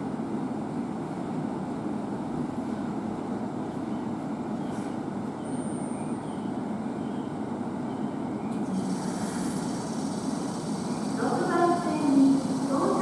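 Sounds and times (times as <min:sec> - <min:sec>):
train rumbling: 0:00.0 - 0:13.0
high hiss: 0:08.6 - 0:13.0.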